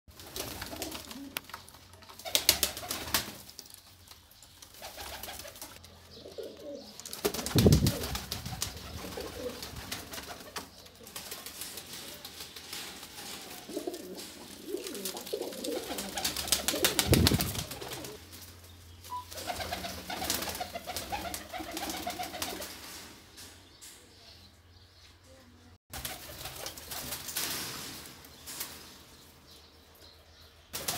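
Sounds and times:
pigeons cooing: 6.1 - 10.7, 13.3 - 18.2.

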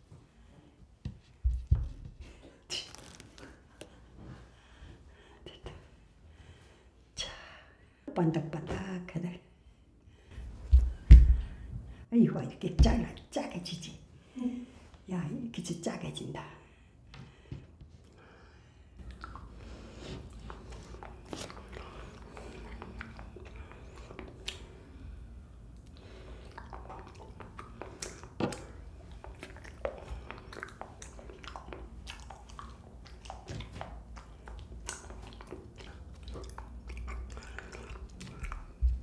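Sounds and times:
sharp mouth clicks: 19.0 - 19.6, 25.8 - 38.7
chewing jelly: 19.0 - 39.0.

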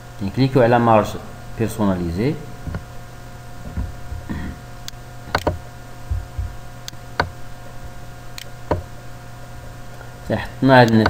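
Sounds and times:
low electrical hum: 0.0 - 11.0
computer mouse clicking: 5.3 - 7.4.

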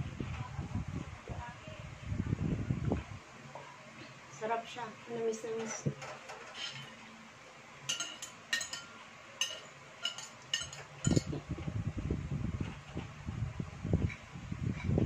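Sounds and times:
cutlery clinking on ceramic plate: 5.6 - 7.0, 7.9 - 11.3.

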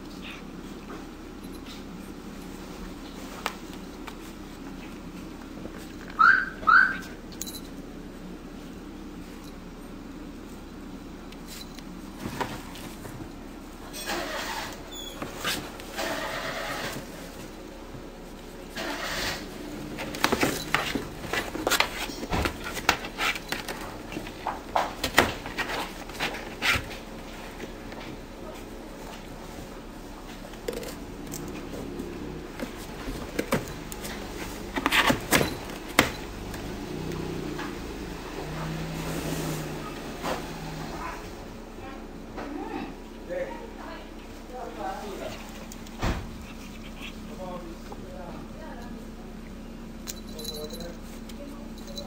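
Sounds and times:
cat scratching cardboard box: 18.8 - 27.1.

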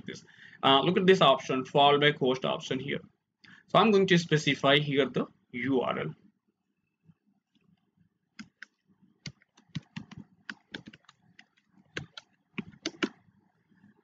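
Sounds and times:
keyboard key clicks: 12.0 - 13.2.

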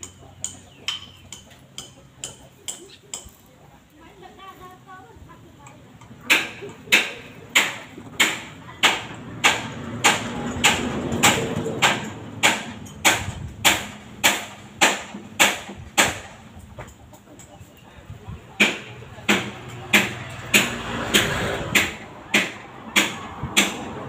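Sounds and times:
sharp knocks: 6.3 - 16.4, 18.6 - 24.0.

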